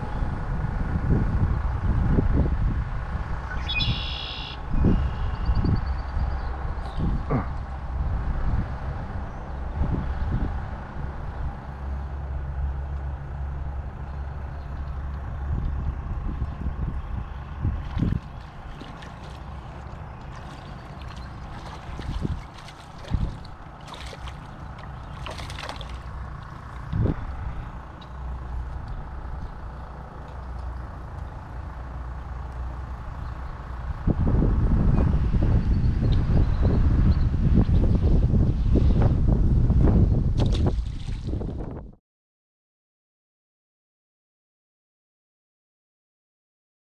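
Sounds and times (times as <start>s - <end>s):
steady low rumble: 0.0s - 42.0s
fish splashing at water surface: 17.8s - 26.9s.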